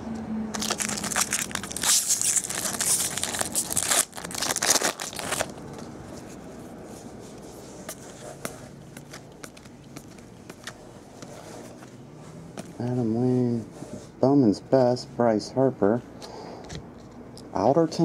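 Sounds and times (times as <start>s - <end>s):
foil wrapper crinkling and tearing: 0.5s - 5.6s
soft handling of cards: 0.6s - 14.2s.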